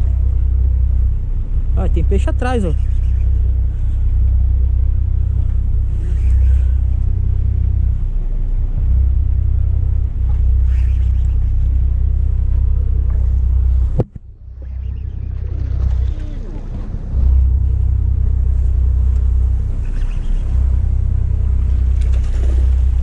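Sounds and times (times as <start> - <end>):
motorboat engine running: 0.0 - 23.0.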